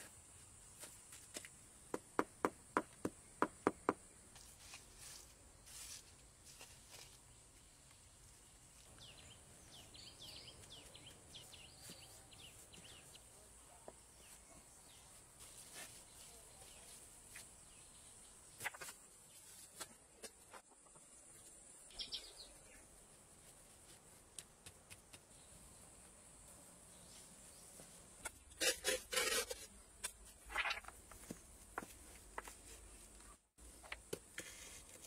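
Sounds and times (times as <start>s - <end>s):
birds chirping: 8.9s - 13.3s, 21.8s - 22.9s.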